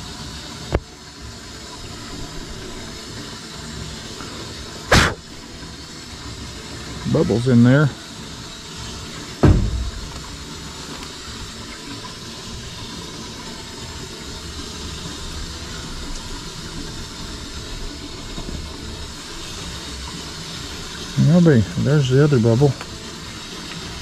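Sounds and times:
steady rushing hiss: 0.0 - 24.0
sharp low knock: 4.9 - 5.2, 9.4 - 10.3.

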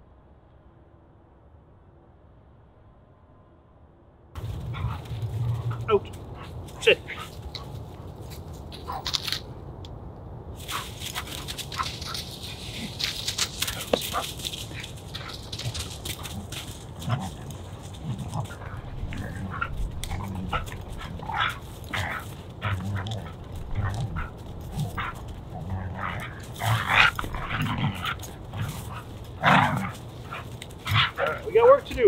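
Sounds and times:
dogs vocalizing while playing: 4.4 - 8.2, 10.7 - 31.6
dogs scuffling: 4.4 - 9.6, 10.6 - 32.0.

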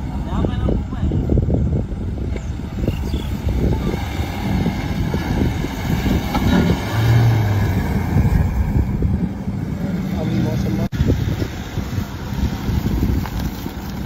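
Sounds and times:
vehicle engine under load: 0.0 - 14.0
wheels spinning in mud: 9.8 - 14.0.

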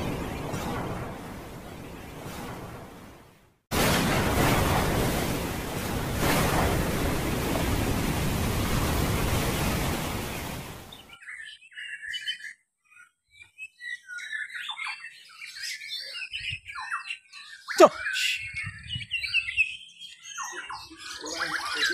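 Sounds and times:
birds whistling and chirping: 10.9 - 21.9.

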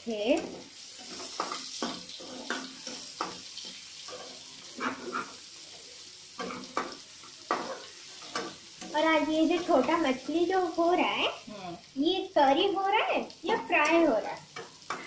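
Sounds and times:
vegetables sizzling in oil: 0.0 - 15.0
metal spatula scraping a pan: 0.4 - 5.5, 6.4 - 9.0, 14.6 - 15.0.

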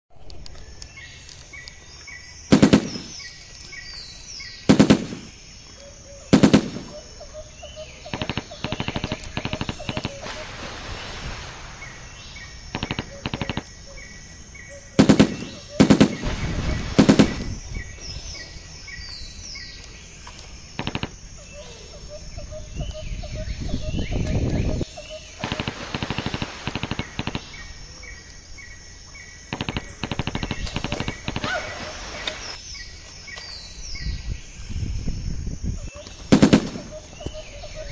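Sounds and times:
birds chirping faintly: 0.1 - 37.9
machine-gun fire bursts: 2.5 - 3.2, 4.7 - 5.3, 6.3 - 6.9, 8.1 - 10.3, 12.7 - 13.7, 15.0 - 17.5, 25.4 - 27.6, 29.5 - 32.5, 36.3 - 37.0.

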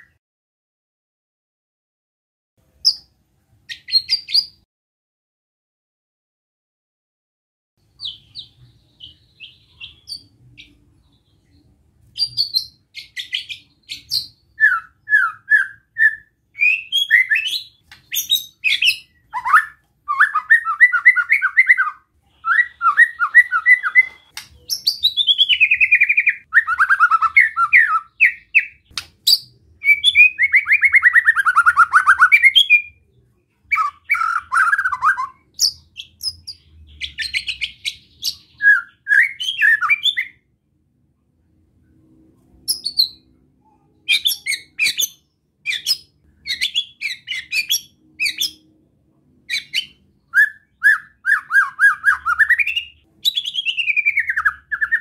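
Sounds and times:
faint bird chirps: 7.8 - 40.4, 41.8 - 48.7.

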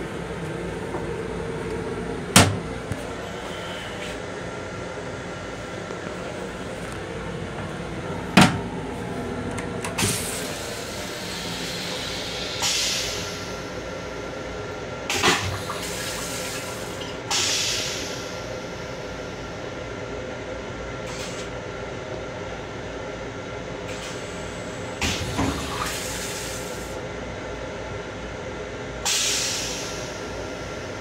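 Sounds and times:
steady railcar hum: 0.0 - 31.0
toilet flush clunk: 15.1 - 16.8, 25.0 - 26.4.

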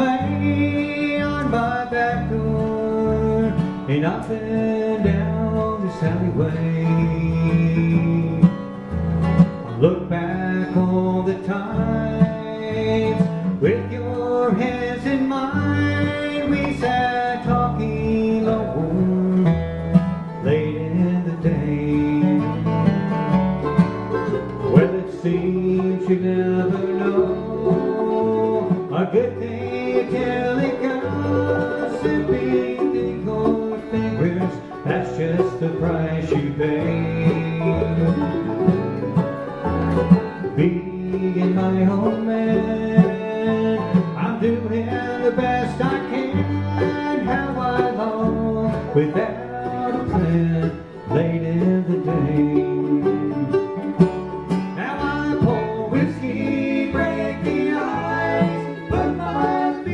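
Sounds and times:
acoustic guitar: 0.0 - 59.9
banjo: 0.0 - 59.9
fiddle: 0.0 - 59.9
mandolin: 0.0 - 59.9
upright bass: 0.0 - 59.9.

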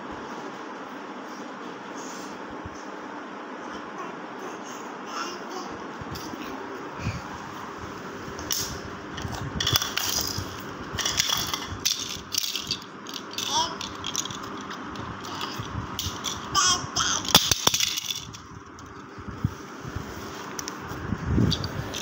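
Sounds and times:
plastic toy rattling: 9.2 - 10.4, 11.0 - 19.0, 21.6 - 22.0.

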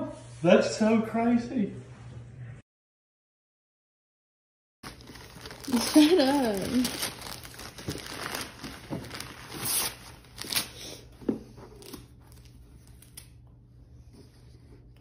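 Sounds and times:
wrapping paper rustling and tearing: 4.8 - 11.1, 11.7 - 13.4.

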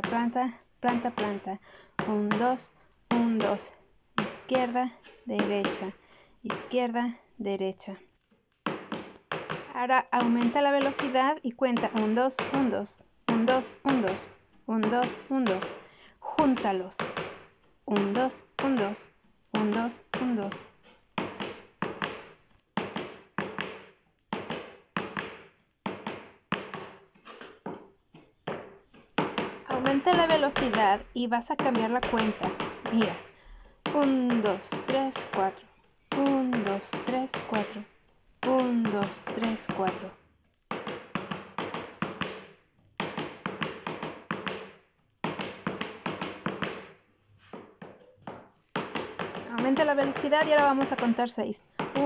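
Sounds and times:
heeled shoes stamping on wood: 0.0 - 7.1, 8.6 - 52.0.

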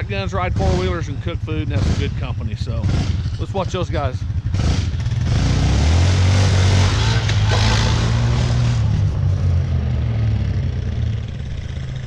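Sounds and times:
atv engine running: 0.0 - 12.0.

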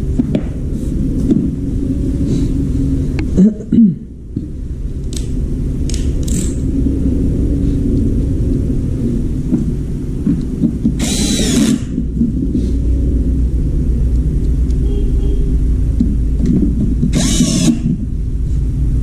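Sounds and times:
low rumble: 0.0 - 19.0
cordless drill whirring: 11.0 - 11.9, 17.1 - 17.9.

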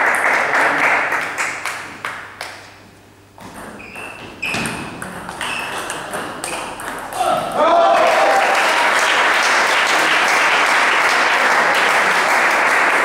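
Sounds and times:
ping pong ball pinging on table: 3.4 - 7.2
ping pong ball clicking off bats: 3.4 - 7.5.

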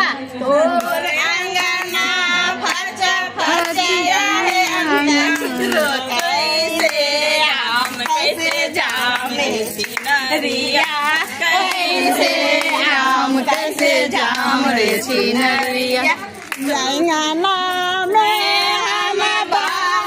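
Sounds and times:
women singing folk song: 0.0 - 20.0
hand clapping: 0.8 - 17.0.

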